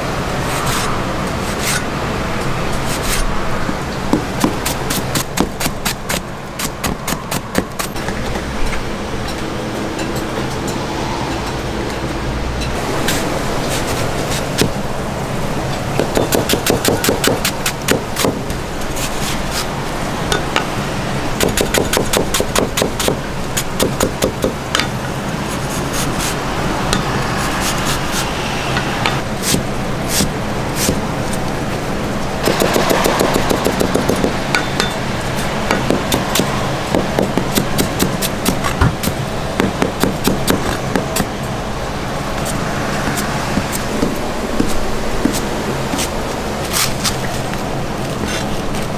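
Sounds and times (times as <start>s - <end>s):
knife chopping onion on board: 32.5s - 34.4s.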